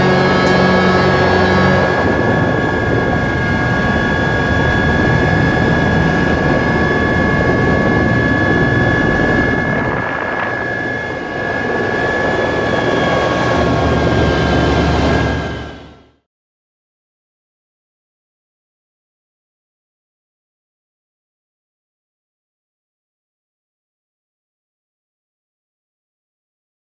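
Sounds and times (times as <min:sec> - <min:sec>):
helicopter engine whine: 0:00.0 - 0:16.2
helicopter rotor rumble: 0:00.0 - 0:16.2.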